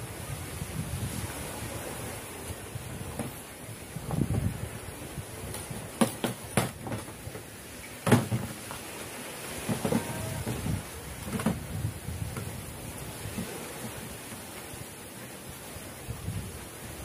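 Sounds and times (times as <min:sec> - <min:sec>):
objects knocking on hard surface: 0:06.0 - 0:07.1, 0:08.0 - 0:08.6, 0:09.6 - 0:11.6.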